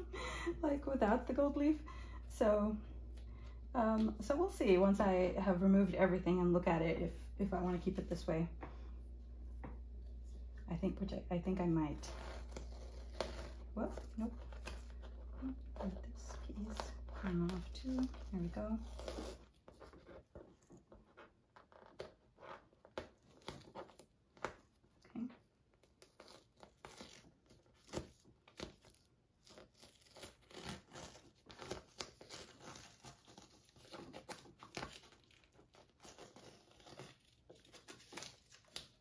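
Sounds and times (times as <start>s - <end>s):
tape peeling off painting: 11.9s - 24.9s, 25.7s - 39.0s.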